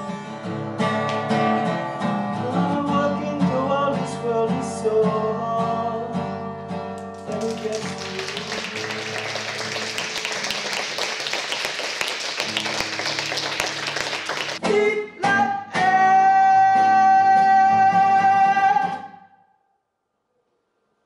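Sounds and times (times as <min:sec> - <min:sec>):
acoustic guitar strumming: 0:00.0 - 0:11.1, 0:12.4 - 0:19.2
man singing: 0:02.4 - 0:06.3, 0:07.2 - 0:09.6, 0:14.4 - 0:19.2.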